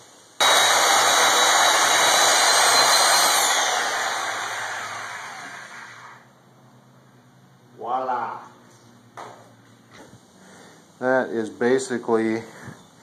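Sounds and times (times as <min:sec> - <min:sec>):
electric saw cutting steel: 0:00.4 - 0:06.2.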